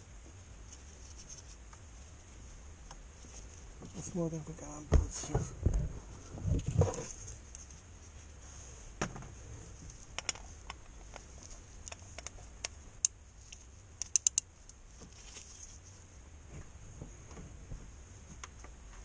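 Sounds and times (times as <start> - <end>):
filter wrench clicking: 14.0 - 14.4.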